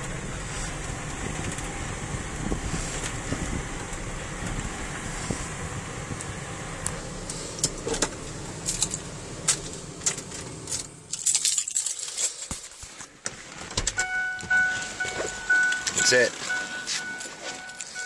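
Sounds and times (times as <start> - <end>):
low rumble: 0.0 - 11.1
keys jingling in ignition: 8.6 - 12.8, 13.9 - 18.0
dashboard warning chime: 13.9 - 18.0.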